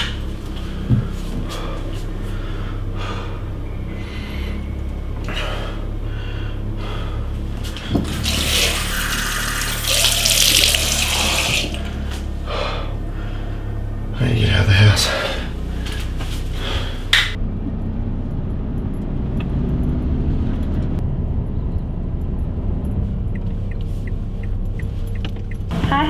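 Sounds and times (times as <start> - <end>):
low hum: 0.0 - 26.0
tap water running into sink: 8.0 - 11.9.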